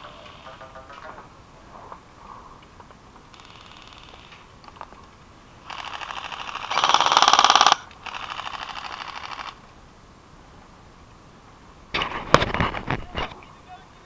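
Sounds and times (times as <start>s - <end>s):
airsoft rifle automatic bursts: 3.3s - 4.3s, 5.7s - 9.6s.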